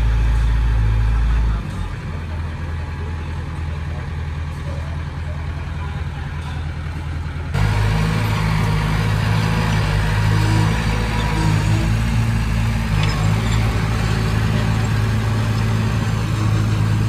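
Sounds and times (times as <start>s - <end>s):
heavy diesel engine running: 0.0s - 17.0s.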